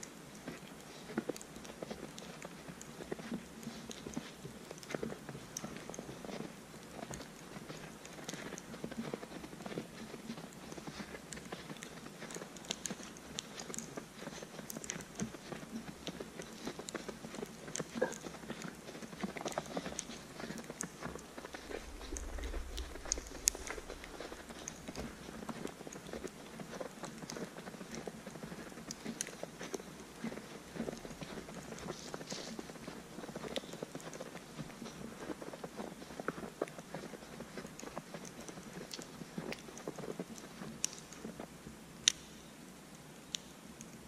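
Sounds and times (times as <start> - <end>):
footsteps crunching through snow: 13.7 - 37.6
low rumble: 21.6 - 25.2.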